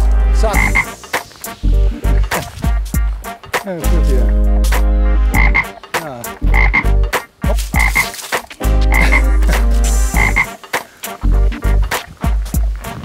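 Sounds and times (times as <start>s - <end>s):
frogs croaking: 0.6s - 0.9s, 5.4s - 5.8s, 6.5s - 8.2s, 8.9s - 9.4s, 10.2s - 10.6s
footsteps on dry leaves and gravel: 7.4s - 9.9s.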